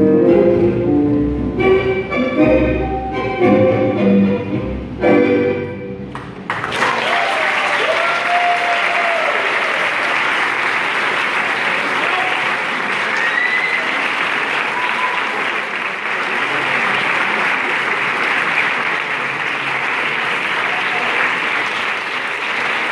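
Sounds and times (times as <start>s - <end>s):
audience applauding: 6.1s - 22.9s
calls from crowd: 6.7s - 22.9s.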